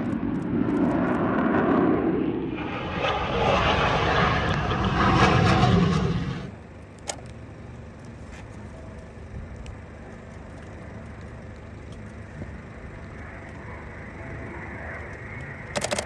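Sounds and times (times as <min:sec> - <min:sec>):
loud jet aircraft noise: 0:00.0 - 0:16.0
steady low rumble: 0:00.0 - 0:16.0
camera shutter clicks: 0:15.8 - 0:16.0.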